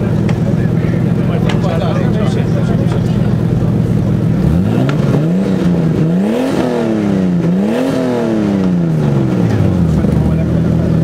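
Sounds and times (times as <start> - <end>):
car engine revving: 0.0 - 11.0.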